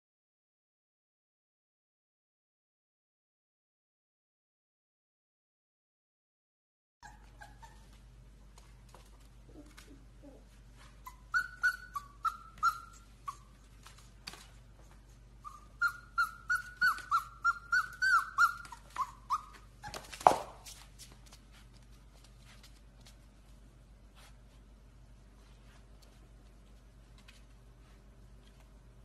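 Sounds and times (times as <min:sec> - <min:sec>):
puppy whining: 0:07.0 - 0:08.2, 0:08.9 - 0:20.6.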